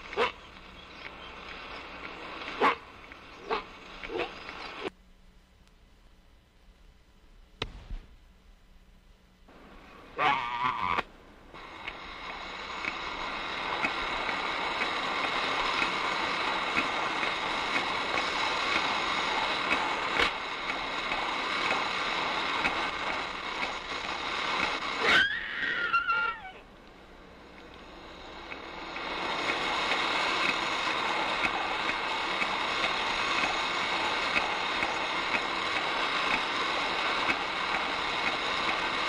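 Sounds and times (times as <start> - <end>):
steady hiss: 0.0 - 39.0
high wavering call: 25.0 - 26.6.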